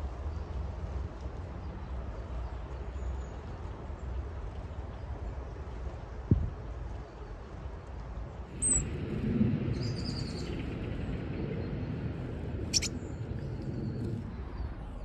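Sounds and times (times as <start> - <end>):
songbirds chirping: 0.1 - 15.0
steady low rumble: 7.5 - 15.0.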